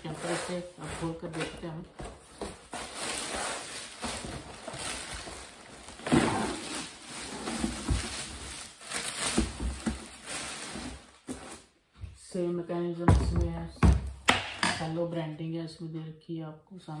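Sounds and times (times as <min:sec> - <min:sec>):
plastic wrapping crinkling: 0:00.0 - 0:11.8.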